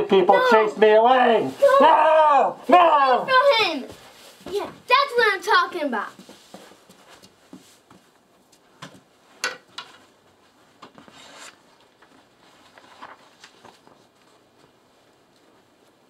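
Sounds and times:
shuffles and rustles: 2.6s - 16.0s.

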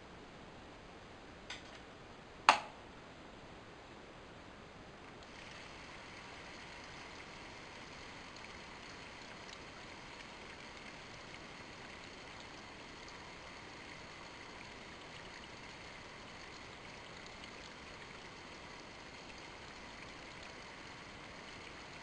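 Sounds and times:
sharp click: 2.5s - 2.8s
coolant bubbling: 5.1s - 22.0s
water pump hissing: 5.2s - 11.8s.

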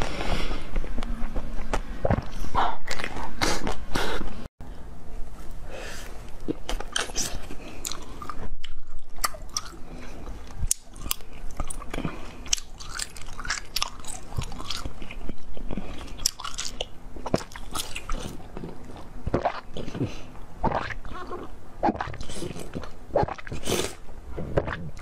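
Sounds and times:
chewing crunchy jelly: 6.4s - 25.0s
wet mouth sounds: 6.4s - 25.0s.

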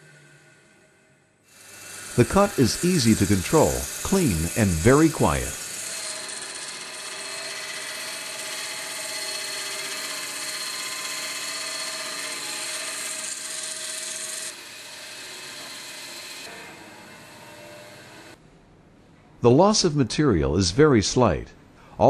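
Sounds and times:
band saw grinding bone: 1.5s - 18.4s.

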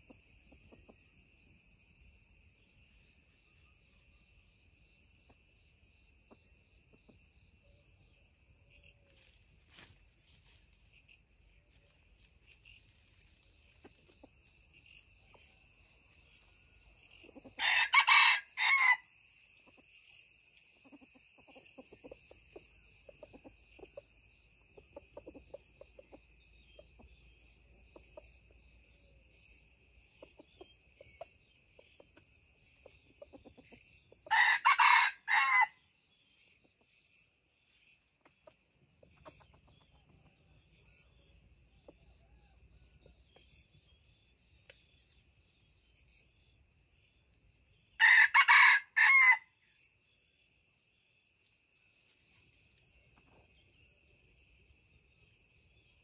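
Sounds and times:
insects chirring: 0.0s - 56.0s
rooster crowing: 17.6s - 19.1s, 34.3s - 35.8s, 48.0s - 49.5s.

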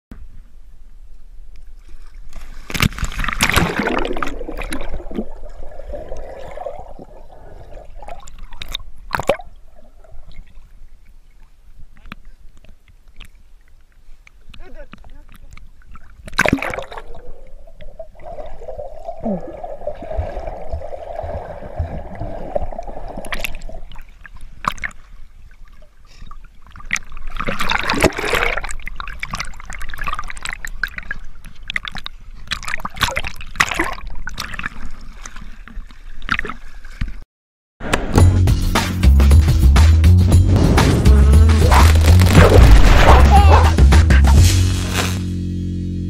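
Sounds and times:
water sloshing and gurgling: 1.7s - 37.2s, 40.4s - 44.0s
rush of bubbling water: 2.6s - 10.8s, 15.9s - 25.0s, 26.1s - 35.5s, 40.5s - 43.9s
buzzing outro jingle: 39.1s - 46.0s.

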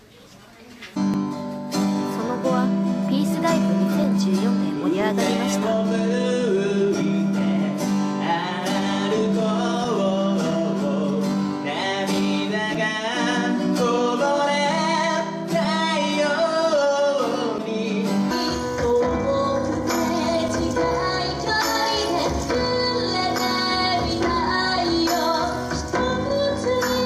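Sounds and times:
acoustic guitar: 0.0s - 27.0s
different music: 1.1s - 7.6s
man singing into a microphone: 4.4s - 27.0s.

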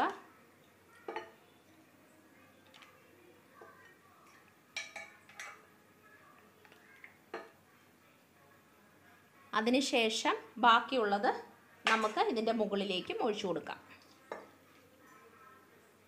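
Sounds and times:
ladle clinking against glass bowl: 1.1s - 1.4s, 4.8s - 5.7s.

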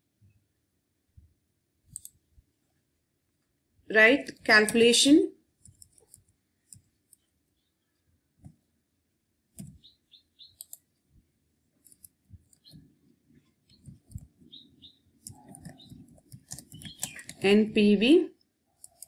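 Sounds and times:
keyboard typing: 1.9s - 2.2s, 4.3s - 5.0s, 5.6s - 7.2s, 10.5s - 10.9s, 11.8s - 14.6s, 15.2s - 17.6s, 18.8s - 19.0s
mouse clicks: 1.9s - 2.2s, 9.6s - 10.9s, 15.2s - 17.4s, 18.8s - 19.0s.

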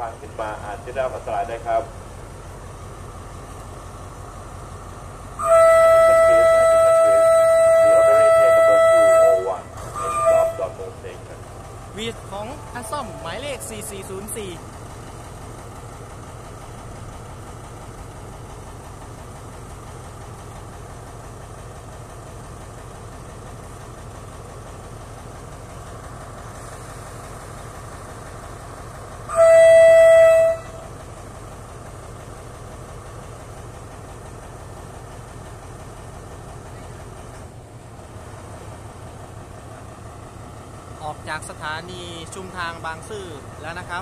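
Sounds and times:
diesel locomotive idling: 0.0s - 44.0s
locomotive horn blast: 5.4s - 11.0s, 29.3s - 30.9s.

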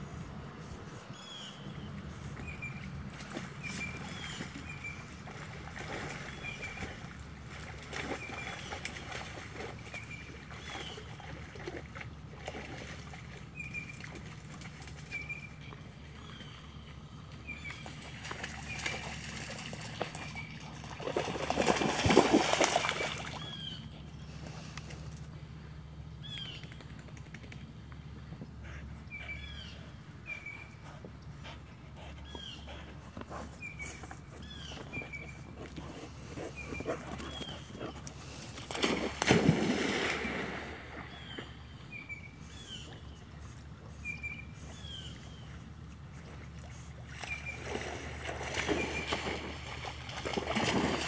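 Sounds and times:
dogs splashing through water: 1.2s - 27.6s, 28.9s - 51.0s
dog splashing in water: 17.4s - 23.9s, 36.8s - 41.4s, 47.0s - 51.0s.

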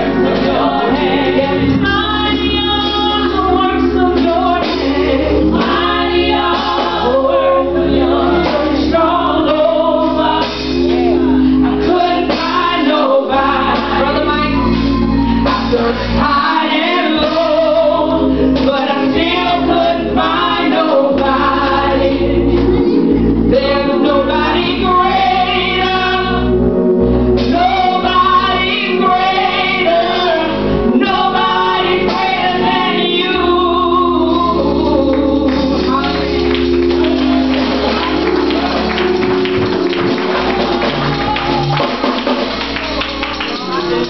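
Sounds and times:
woman singing gospel: 0.0s - 26.7s, 27.3s - 44.0s
instrumental accompaniment: 0.0s - 44.0s.

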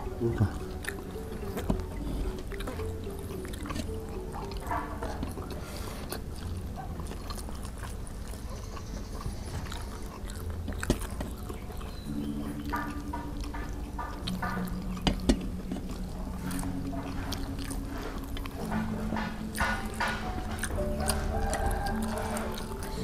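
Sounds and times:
people chewing: 0.0s - 23.0s
soft background music: 0.0s - 23.0s.

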